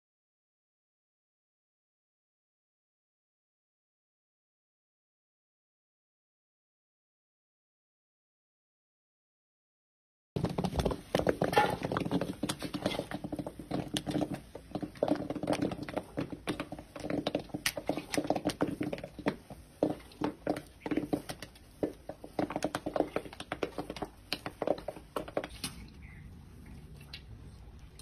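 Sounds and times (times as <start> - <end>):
popcorn rustling and clattering: 10.4 - 25.9.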